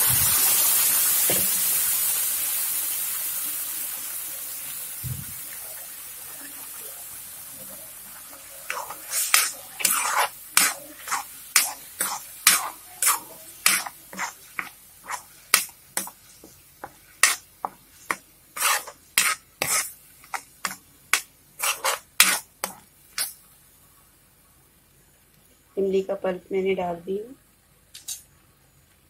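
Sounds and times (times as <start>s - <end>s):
spoon scraping metal pan: 8.7s - 23.4s.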